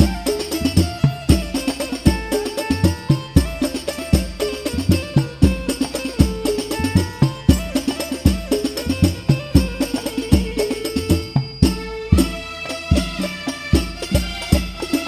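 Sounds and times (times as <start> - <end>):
deep bass drum strokes: 0.0 - 15.0
frame drums interlocking rhythm: 0.0 - 15.0
held melody line: 0.0 - 15.0.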